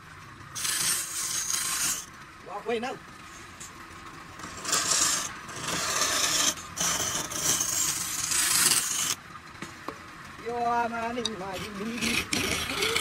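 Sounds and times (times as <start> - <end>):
scraper cutting wood on lathe: 0.6 - 2.1, 4.4 - 9.2, 11.4 - 13.0.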